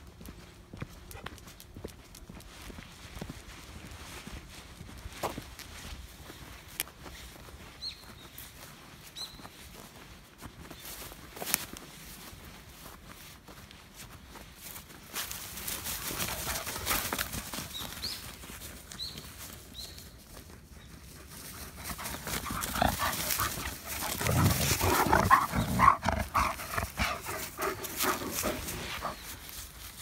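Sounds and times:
dogs scuffling in grass: 2.5 - 30.0
dogs vocalizing: 21.8 - 29.4.

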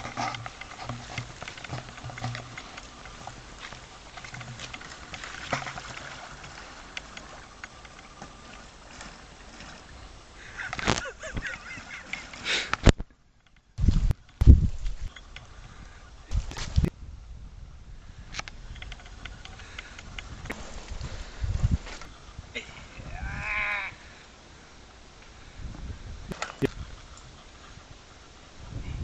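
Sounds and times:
mud and leaves crackling: 0.0 - 13.0
tyres splashing through muddy puddle: 0.0 - 13.0.

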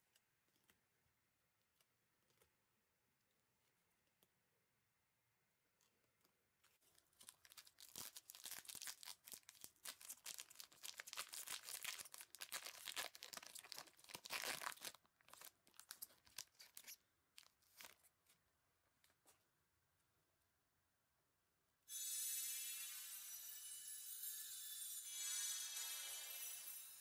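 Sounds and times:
plastic wrapper crinkling: 6.7 - 18.4
plastic pack tearing: 6.8 - 18.0.

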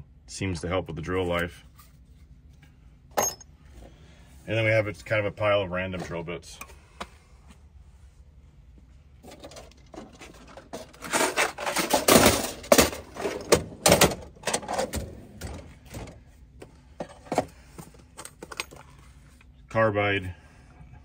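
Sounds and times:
tools rattling in drawers: 9.2 - 16.2
metal drawers sliding: 9.4 - 16.2.

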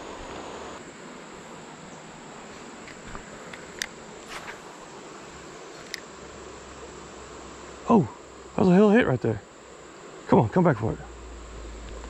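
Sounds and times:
high-pitched insect chorus: 0.0 - 12.0
low background hiss: 0.0 - 12.0
faint clicks: 2.8 - 4.0, 5.8 - 6.1.

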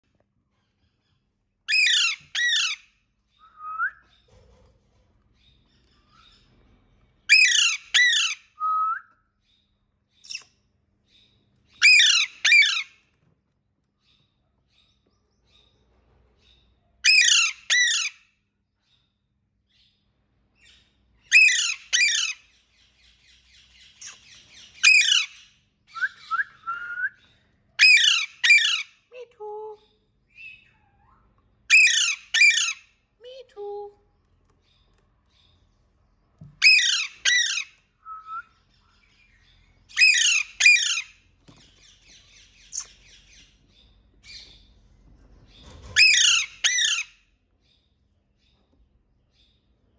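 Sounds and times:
parakeet squawking: 1.7 - 2.8, 11.8 - 12.9, 27.8 - 28.9, 30.4 - 32.9, 36.6 - 37.7, 39.9 - 41.2, 46.0 - 47.1.

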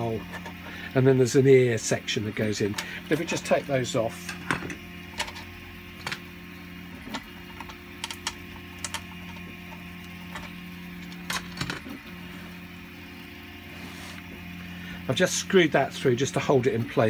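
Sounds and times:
plastic parts clicking and knocking: 7.0 - 9.5, 10.3 - 12.0.

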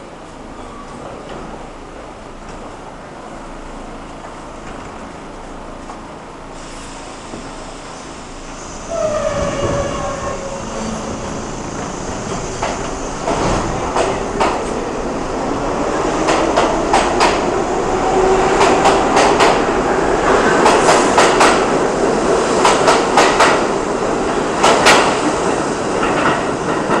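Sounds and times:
train running noise: 0.0 - 27.0
train wheels clacking over rail joints: 12.3 - 14.8, 18.5 - 19.7, 22.6 - 23.6.

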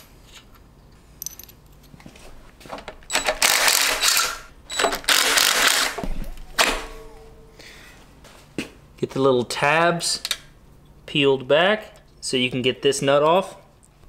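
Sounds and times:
metal clinks: 1.2 - 1.6.

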